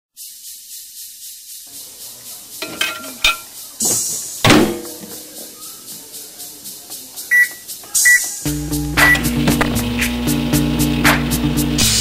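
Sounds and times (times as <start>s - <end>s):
short keypad beep: 7.3s - 8.2s.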